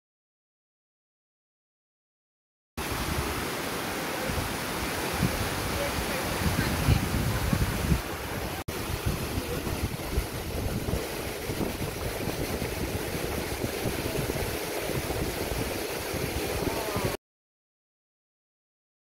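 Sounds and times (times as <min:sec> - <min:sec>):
waterfall rushing: 0:02.8 - 0:17.2
wind buffeting microphone: 0:04.3 - 0:17.2.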